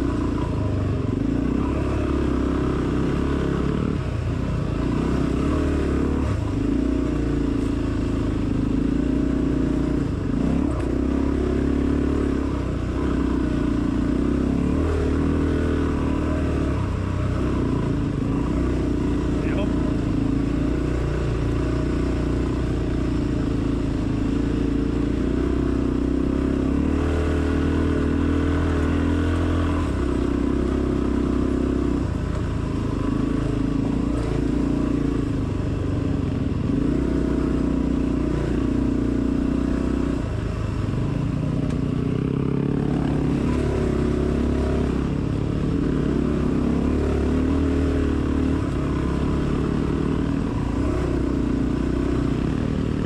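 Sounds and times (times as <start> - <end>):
dirt bike engine revving: 4.7 - 35.3, 42.2 - 53.0.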